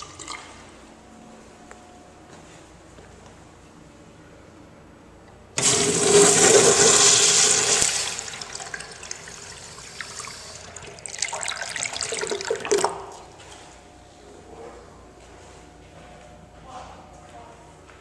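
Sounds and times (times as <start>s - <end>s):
urinal flushing: 0.0s - 0.7s, 5.6s - 13.4s.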